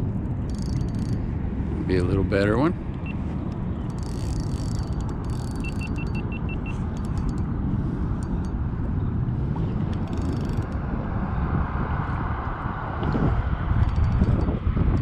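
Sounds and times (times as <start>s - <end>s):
wind rumbling on microphone: 0.0s - 15.0s
fishing reel cranking: 0.4s - 1.2s, 3.9s - 8.5s, 9.9s - 10.8s, 13.8s - 14.5s
short high beeps: 5.5s - 6.8s.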